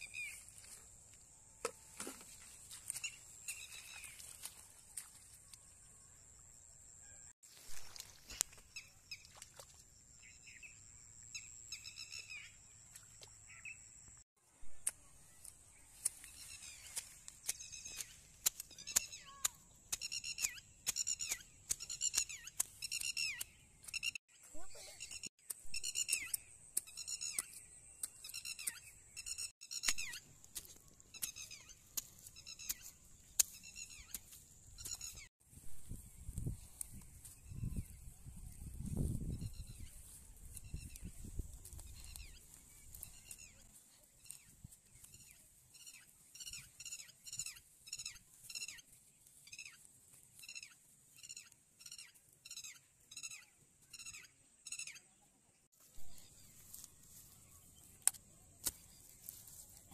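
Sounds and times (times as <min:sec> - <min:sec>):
hand tool digging into wet soil: 0:16.0 - 0:24.2.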